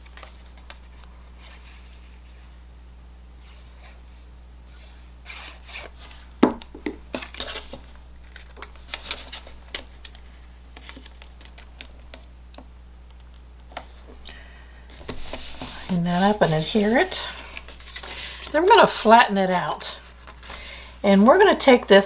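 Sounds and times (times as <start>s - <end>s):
paper rubbing: 14.9s - 19.0s.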